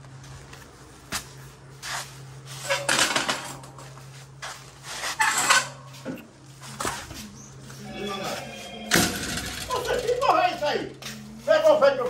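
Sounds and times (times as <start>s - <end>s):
steady low hum: 0.0s - 11.8s
metal clattering and rattling: 8.9s - 10.3s.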